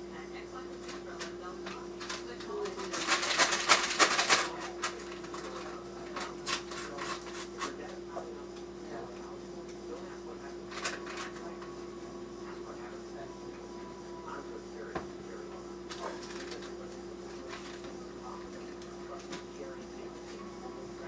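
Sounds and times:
steady hum: 0.0 - 21.0
utensils and dishes clattering: 1.7 - 7.7.

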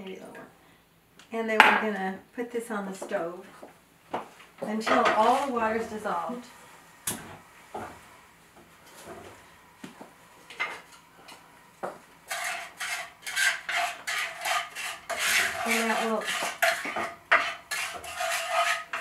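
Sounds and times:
wooden spatula scraping frying pan: 4.9 - 6.4, 12.2 - 19.0.

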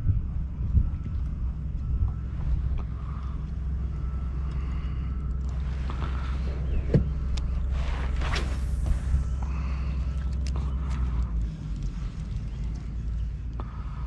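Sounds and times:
wind buffeting microphone: 0.0 - 3.0.

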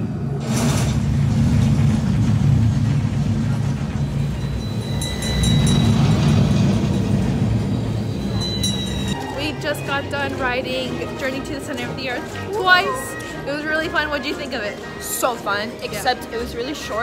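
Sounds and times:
ride vehicle rumble: 0.0 - 17.0.

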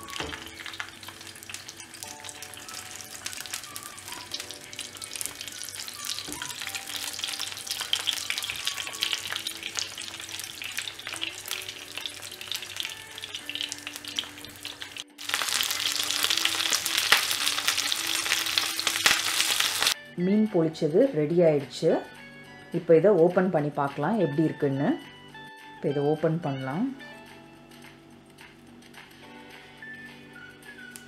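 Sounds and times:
fish sizzling in oil with pops: 0.0 - 20.0.

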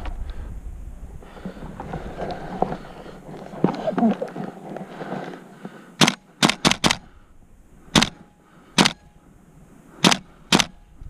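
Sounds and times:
airsoft gun shots: 6.0 - 7.1, 7.9 - 9.0, 10.0 - 10.8.

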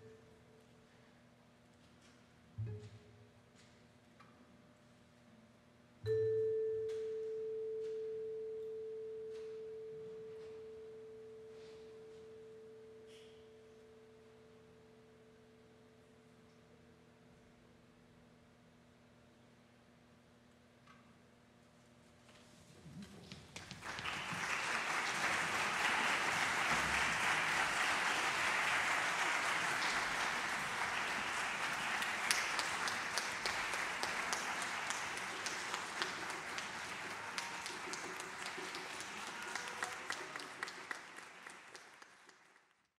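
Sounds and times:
audience applauding: 23.4 - 42.9.

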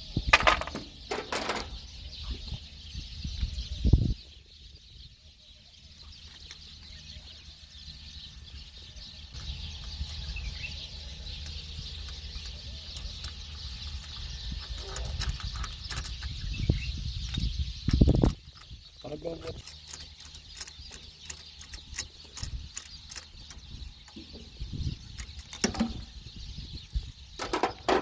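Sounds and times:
wind on microphone: 1.6 - 5.3, 8.5 - 21.0, 21.7 - 28.0
wrench clicking: 19.5 - 23.6.

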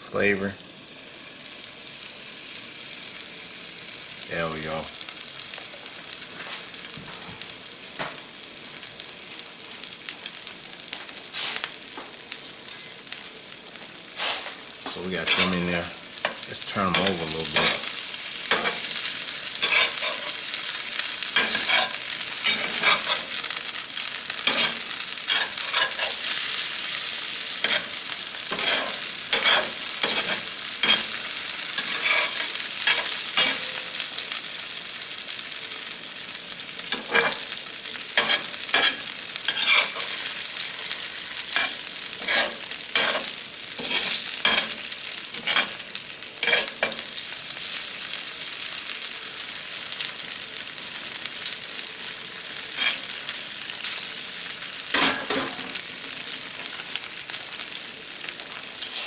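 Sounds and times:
potatoes sizzling in oil: 0.0 - 59.0
spatula scraping a pan: 15.2 - 15.7, 18.5 - 20.5, 21.2 - 23.4, 24.4 - 33.8, 36.9 - 37.5, 38.2 - 40.4, 41.0 - 45.8, 46.4 - 47.1, 52.7 - 53.1.

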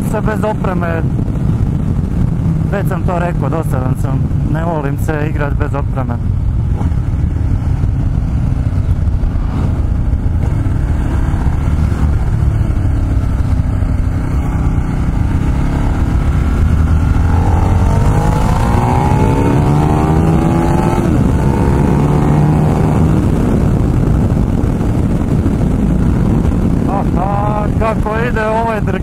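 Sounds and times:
motorcycle engine revving: 6.0 - 27.9.

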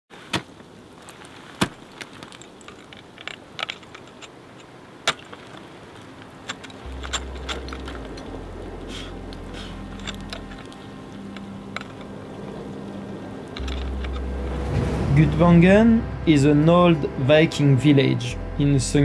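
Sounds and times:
low steady hum: 0.8 - 19.0
sharp clicks and clinks: 6.4 - 8.4.

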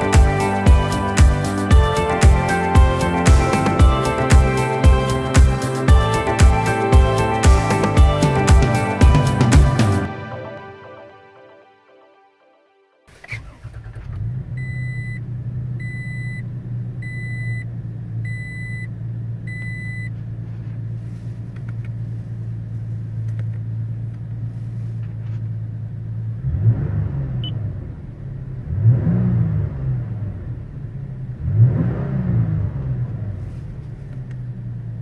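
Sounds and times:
engine revving: 13.1 - 15.8, 26.3 - 34.4.

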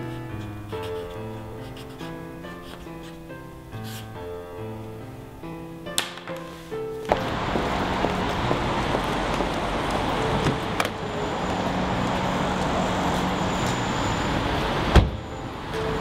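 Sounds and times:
city street traffic: 7.1 - 16.0.

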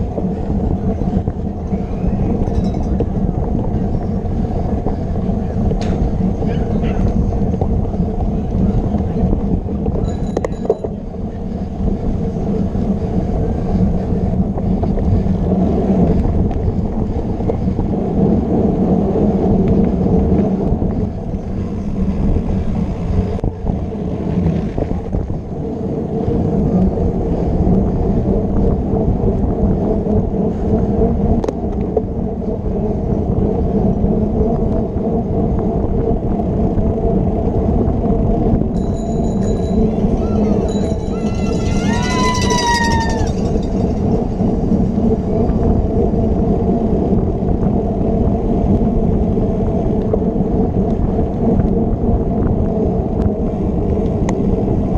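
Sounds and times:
bike tyres rumbling over ground: 0.0 - 54.9.

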